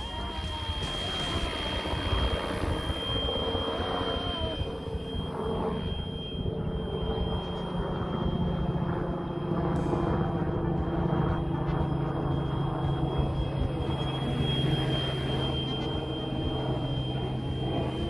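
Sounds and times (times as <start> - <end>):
electric motor high whine: 0.0 - 18.0
spinning rotors hum: 0.0 - 18.0.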